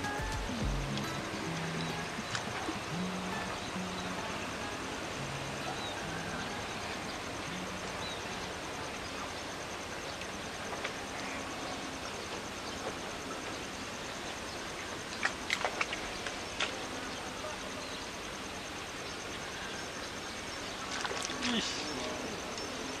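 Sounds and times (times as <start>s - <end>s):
faint high-pitched pulsing tone: 0.0s - 15.5s
outdoor background rush: 0.0s - 23.0s.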